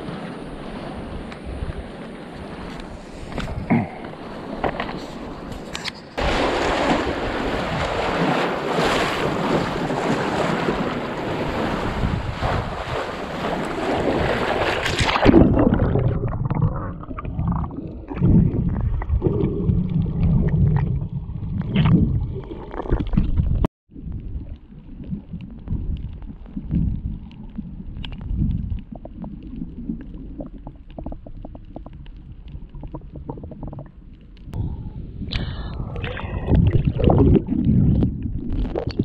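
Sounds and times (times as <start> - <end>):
wind and surf hiss: 0.0 - 14.8
small clicks and knocks underwater: 2.7 - 6.2, 21.6 - 34.6
muffled underwater rumbling: 6.5 - 39.0.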